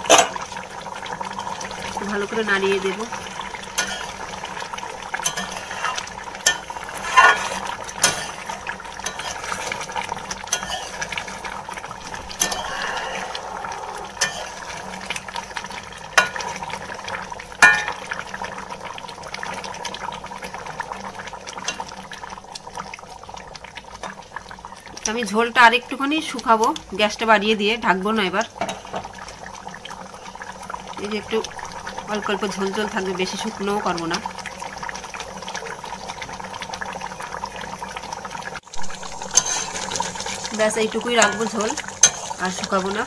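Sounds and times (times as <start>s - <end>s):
metal ladle scraping a metal pan: 0.0s - 0.4s, 3.7s - 4.2s, 5.2s - 9.8s, 10.4s - 11.3s, 12.1s - 14.9s, 39.0s - 40.3s, 41.2s - 42.4s.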